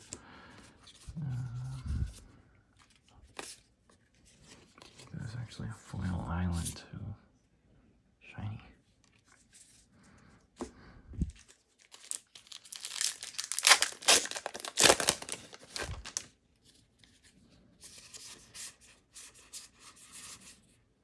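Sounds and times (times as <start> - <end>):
cards rustling: 11.2 - 16.3
foil wrapper tearing and crinkling: 11.4 - 16.3.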